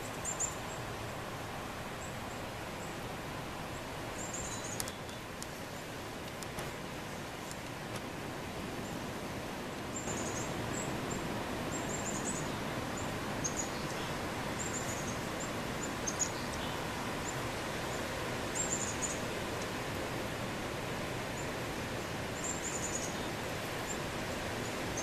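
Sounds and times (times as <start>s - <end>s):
small birds chirping: 0.0s - 0.9s, 3.7s - 5.9s, 10.0s - 19.3s, 22.3s - 25.0s
steady background hiss: 0.0s - 25.0s.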